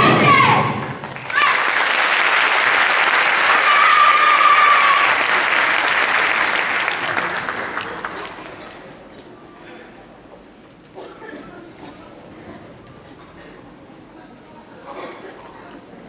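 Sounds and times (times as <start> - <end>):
held high note: 0.0 - 1.4
audience applauding: 1.0 - 8.8.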